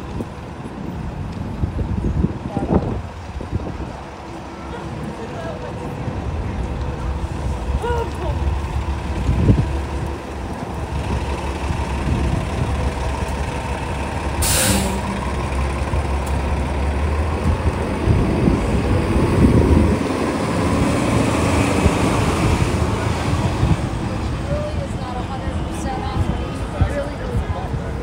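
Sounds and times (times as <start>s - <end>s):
city street traffic: 0.0s - 28.0s
heavy vehicle engine running: 0.0s - 28.0s
air brakes hissing: 14.4s - 15.2s.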